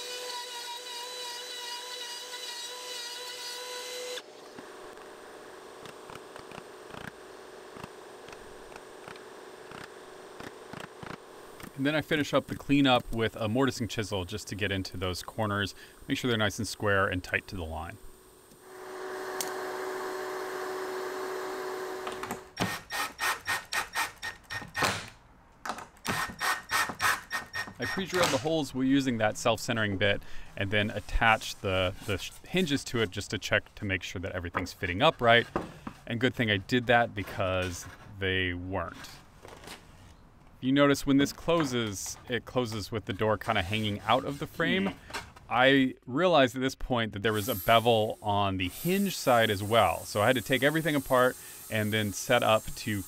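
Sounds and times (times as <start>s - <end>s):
router high-pitched whine: 18.6s - 23.2s, 47.3s - 53.0s
hand tool scraping wood: 43.2s - 45.1s.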